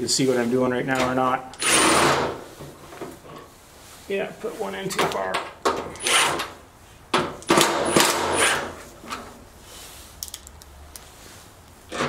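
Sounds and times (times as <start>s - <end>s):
cordless drill driving screw into steel: 1.5s - 2.4s, 5.9s - 6.5s, 7.5s - 8.8s.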